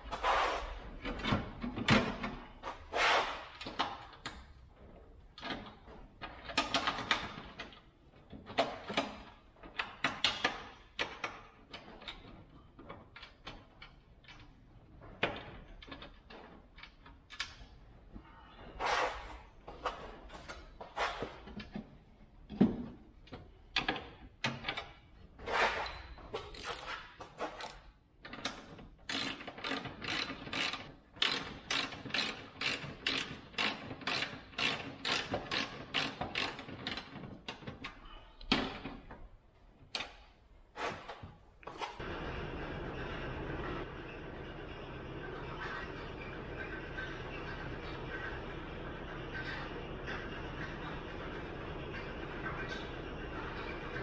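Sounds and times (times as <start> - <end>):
ratchet wrench clicking: 26.5 - 27.0, 29.1 - 37.1.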